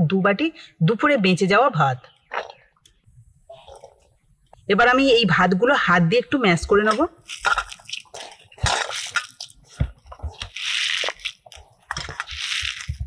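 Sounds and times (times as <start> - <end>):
hand mashing rice in metal bowl: 6.7 - 13.0.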